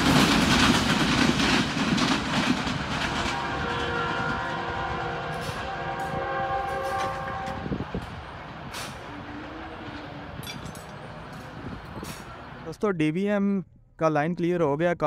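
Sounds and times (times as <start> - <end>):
train coaches rumbling on track: 0.0 - 12.8
train horn chord: 3.1 - 7.8
short low horn toots: 3.3 - 7.8.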